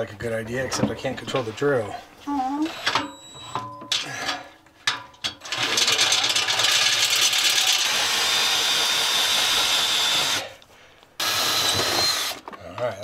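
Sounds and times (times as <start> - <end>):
power drill drilling metal: 5.4 - 10.6, 11.2 - 12.4.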